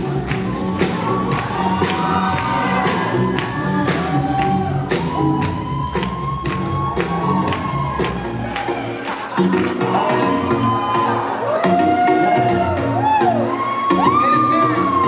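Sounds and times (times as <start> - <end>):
drum beat: 0.0 - 8.7
person singing: 0.8 - 5.6.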